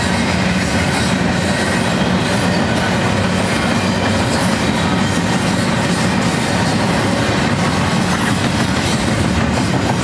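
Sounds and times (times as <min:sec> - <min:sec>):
train wheels rolling on rails: 0:00.0 - 0:10.0.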